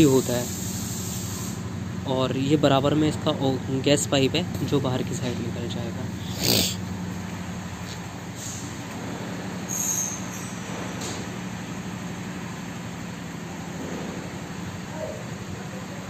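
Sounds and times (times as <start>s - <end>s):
short high-pitched squeal: 9.6s - 10.7s.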